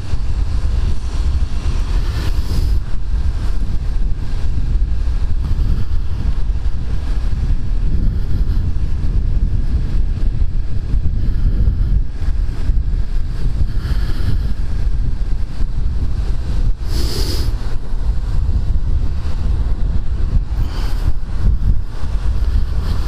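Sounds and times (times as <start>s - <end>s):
wind and road noise rumble: 0.0s - 23.0s.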